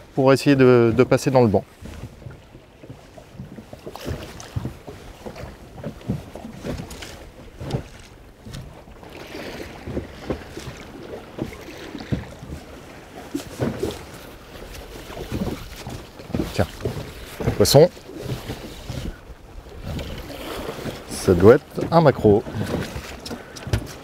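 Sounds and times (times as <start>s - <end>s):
waves slapping against boat hull: 0.0s - 24.0s
wind on microphone: 3.4s - 21.6s.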